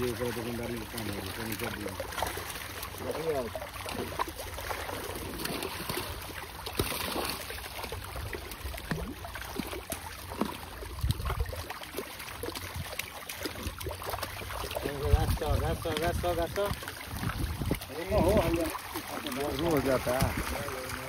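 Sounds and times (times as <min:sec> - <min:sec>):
water splashing and trickling: 0:00.0 - 0:21.0
wind rumble on microphone: 0:10.9 - 0:11.6, 0:14.8 - 0:18.7.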